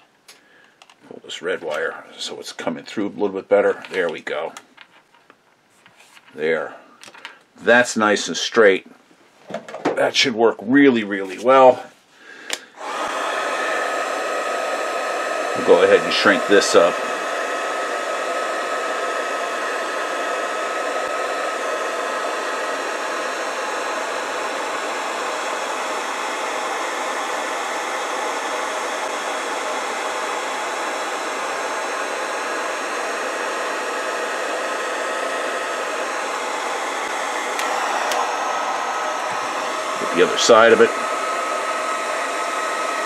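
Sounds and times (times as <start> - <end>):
heat gun blowing with whine: 12.4 - 43.0.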